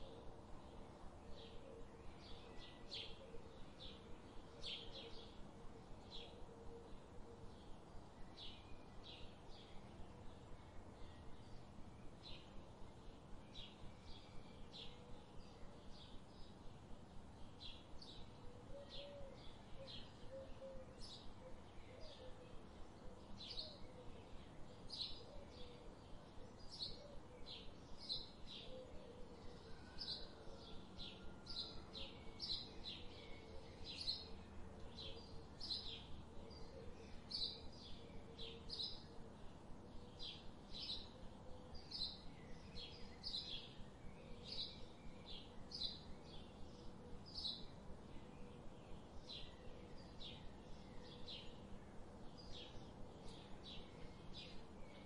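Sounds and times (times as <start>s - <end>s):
bird chirping: 17.4s - 55.0s.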